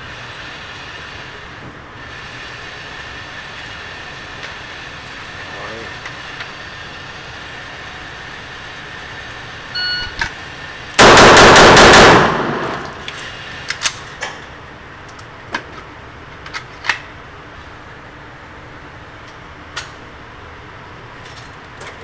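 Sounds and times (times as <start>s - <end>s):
shot timer beep: 9.8s - 10.2s
rapid pistol shots echoing: 11.0s - 13.0s
brass casings clinking on concrete: 12.2s - 13.4s.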